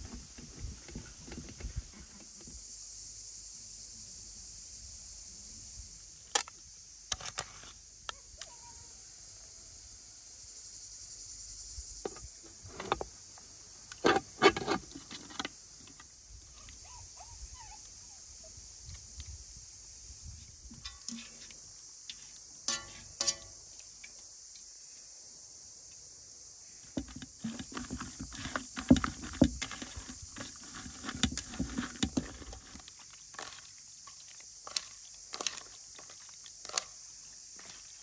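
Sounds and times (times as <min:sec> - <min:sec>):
crickets chirping: 0:00.0 - 0:38.0
metal cookware clinking: 0:20.8 - 0:21.5, 0:22.6 - 0:23.6.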